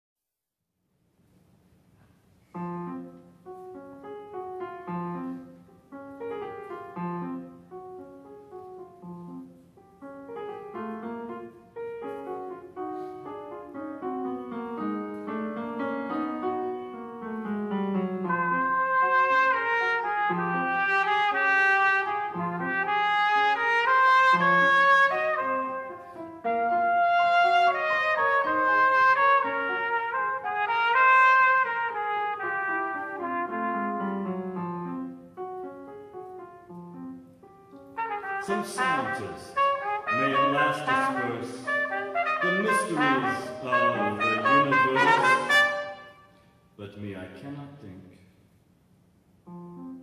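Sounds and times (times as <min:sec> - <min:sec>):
piano: 0:01.0 - 0:50.0
trumpet: 0:18.2 - 0:35.1, 0:37.9 - 0:46.6.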